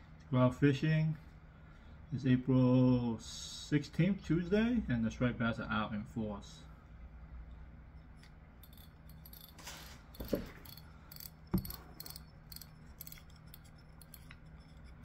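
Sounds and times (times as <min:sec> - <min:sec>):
fishing reel clicking: 0:08.6 - 0:14.8.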